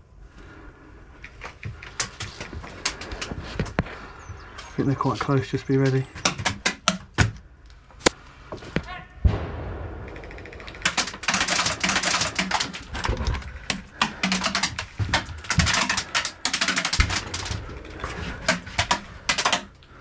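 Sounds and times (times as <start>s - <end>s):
rapid clicking clatter: 10.0s - 19.8s.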